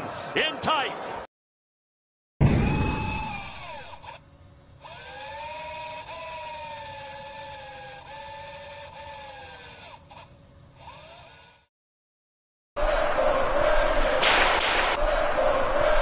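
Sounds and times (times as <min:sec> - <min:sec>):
electric motor whirring: 0:02.6 - 0:04.2, 0:04.8 - 0:11.7.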